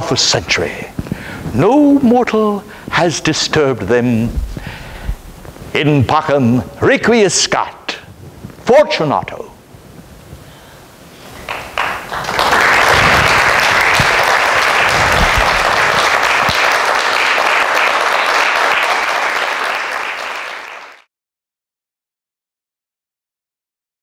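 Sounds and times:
audience applauding: 11.4s - 21.1s.

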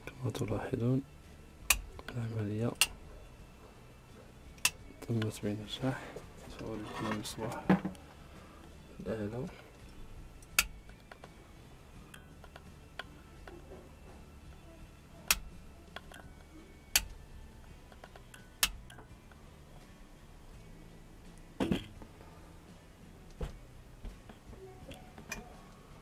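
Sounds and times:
light switch clicking: 1.7s - 1.9s, 15.3s - 15.5s, 17.0s - 17.2s.

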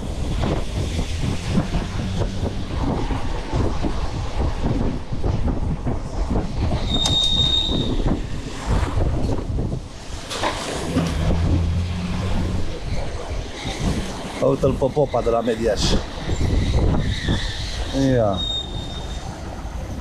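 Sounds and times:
scooter road rumble and rattling: 0.0s - 20.0s
wind buffeting microphone: 0.0s - 20.0s
high-pitched squeal: 6.7s - 8.2s, 10.4s - 20.0s.

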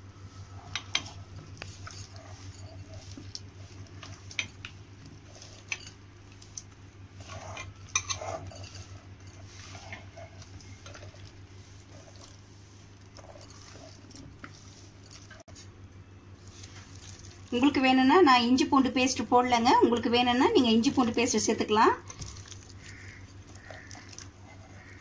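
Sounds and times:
steady low hum: 0.0s - 25.0s
hand squelching wet food: 0.1s - 15.7s, 16.4s - 18.2s, 19.8s - 25.0s.

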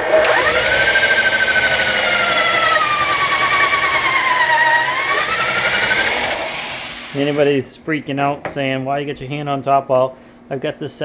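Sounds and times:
electric drill boring into wood: 0.0s - 7.5s.

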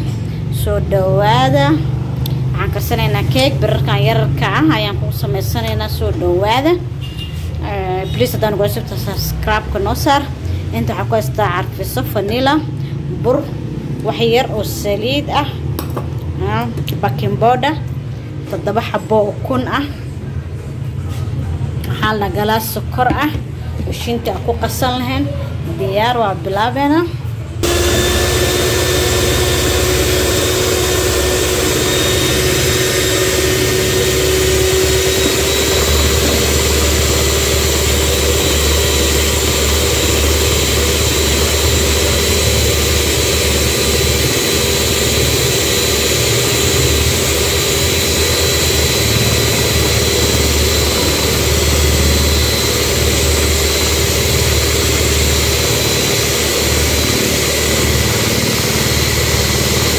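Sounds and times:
electric hand mixer whining: 27.6s - 59.9s.

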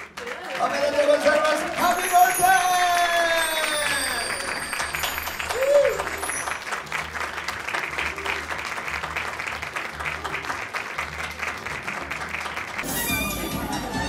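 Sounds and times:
audience applauding: 0.0s - 14.0s
background music with low beat: 12.8s - 14.0s.

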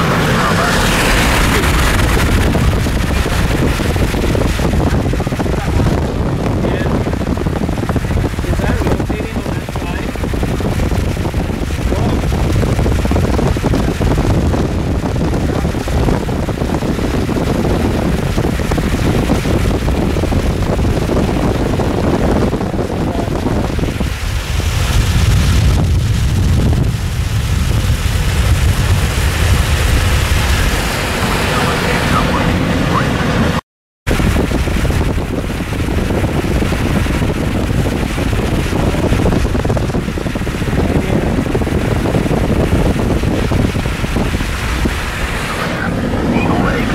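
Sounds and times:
car road noise: 0.0s - 46.9s
wind buffeting microphone: 0.0s - 46.9s.

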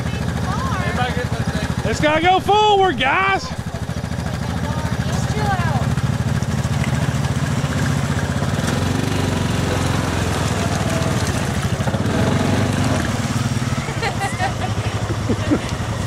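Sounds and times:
off-road vehicle engines running: 0.0s - 16.0s.

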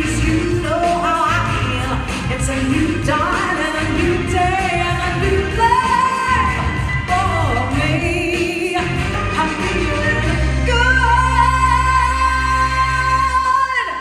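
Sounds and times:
musical accompaniment: 0.0s - 14.0s
woman singing with vibrato: 0.0s - 14.0s.

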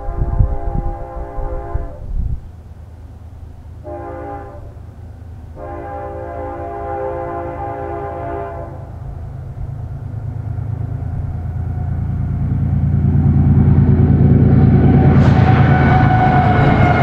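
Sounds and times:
locomotive air horn blasts: 0.0s - 2.4s, 3.8s - 4.9s, 5.5s - 9.1s, 14.8s - 17.0s
diesel engines rumbling: 0.0s - 17.0s.

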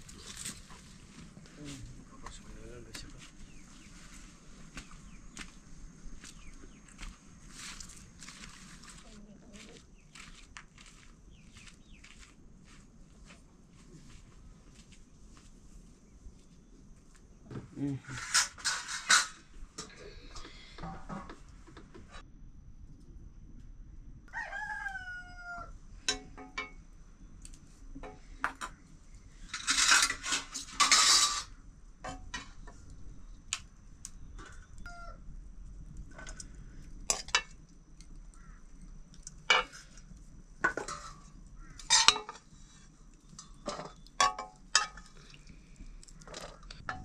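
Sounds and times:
rooster crowing: 24.3s - 25.8s, 34.8s - 35.2s
dishes and cutlery clinking: 40.7s - 42.5s, 43.4s - 45.2s.

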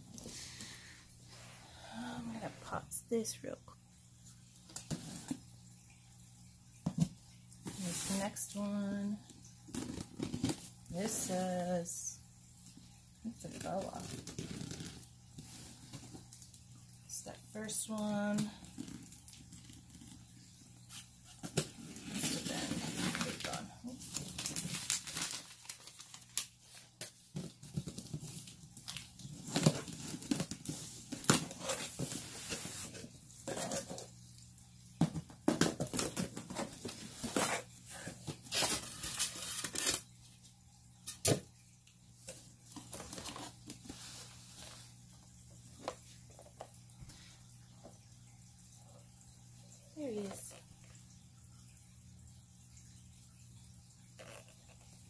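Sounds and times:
packaging tearing and rustling: 21.8s - 32.1s, 38.2s - 40.1s.

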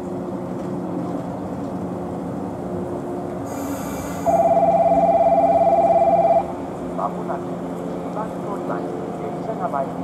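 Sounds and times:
electric train running hum: 0.0s - 10.0s
brief high hiss: 3.5s - 4.5s.

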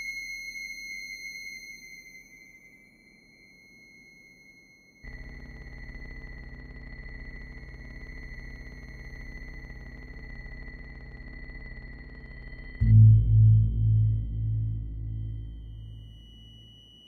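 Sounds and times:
low electronic hum: 5.1s - 17.0s
steady high electronic tone: 10.0s - 17.0s.

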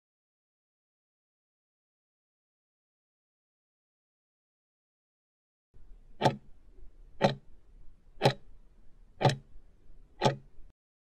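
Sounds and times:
sharp clock ticks: 6.2s - 6.5s, 7.2s - 7.5s, 8.2s - 8.5s, 9.2s - 9.5s, 10.2s - 10.6s.

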